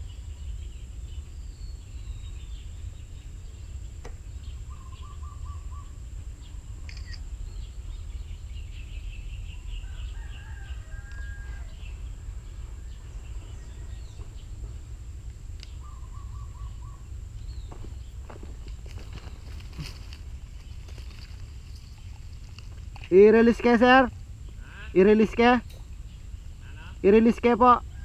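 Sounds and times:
birds calling: 0.0s - 28.0s
constant high-pitched tone: 0.0s - 28.0s
low steady rumble: 0.0s - 28.0s.

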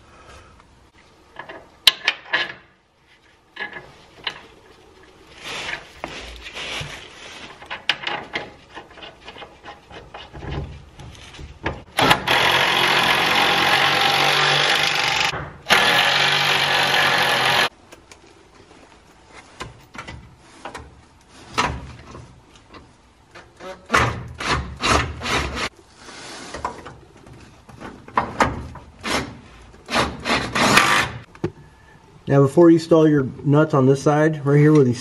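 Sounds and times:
cordless power tool running: 12.0s - 17.7s.

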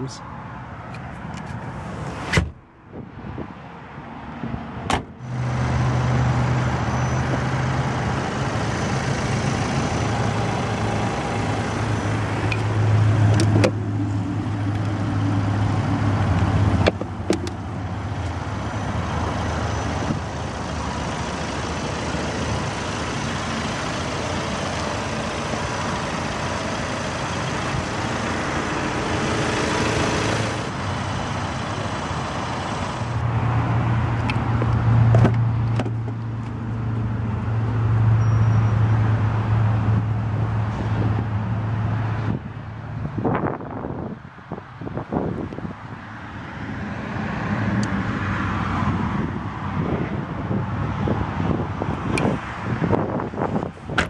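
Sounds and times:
engine idling: 5.4s - 12.9s, 17.4s - 33.2s.

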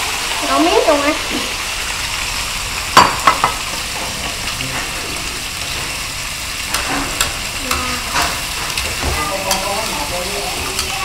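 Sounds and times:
seafood sizzling in oil: 0.0s - 11.0s
utensils knocking on a wok: 3.0s - 4.4s, 6.7s - 11.0s.

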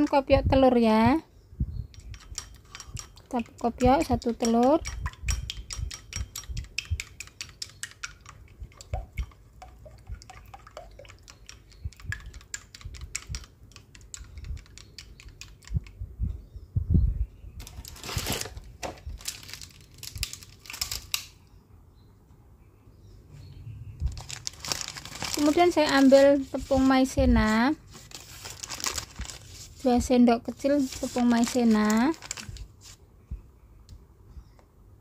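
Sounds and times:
utensil clicking against glass bowl: 1.9s - 16.0s
rustling noises: 17.6s - 21.3s, 24.0s - 33.1s.

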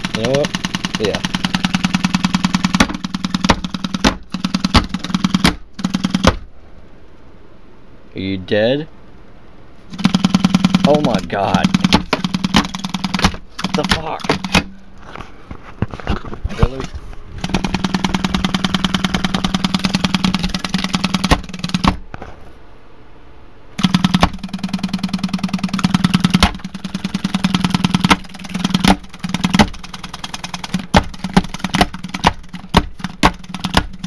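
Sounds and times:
torn speaker buzzing: 0.0s - 34.0s.

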